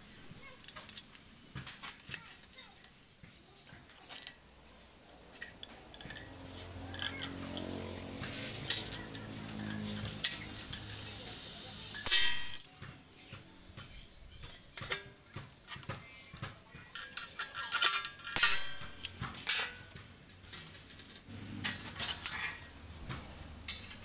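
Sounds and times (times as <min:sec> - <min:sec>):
tools clinking on sheet metal: 0:05.3 - 0:11.3, 0:11.9 - 0:12.7, 0:14.4 - 0:22.8.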